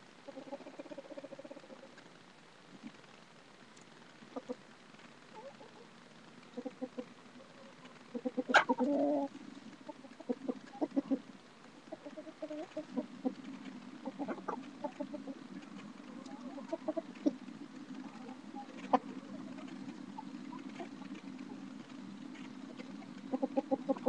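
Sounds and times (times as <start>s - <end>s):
chickens clucking: 0.3s - 2.0s, 4.3s - 4.6s, 6.5s - 24.0s.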